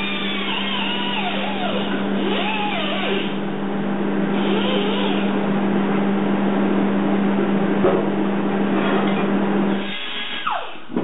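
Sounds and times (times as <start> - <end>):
die grinder grinding metal: 0.0 - 3.4, 4.4 - 5.4.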